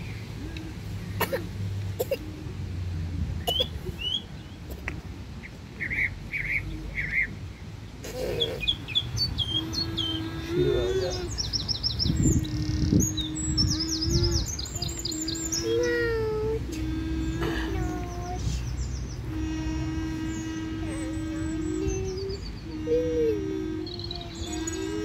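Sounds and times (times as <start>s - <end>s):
small birds chirping: 3.4s - 25.0s
steady low hum: 6.6s - 25.0s.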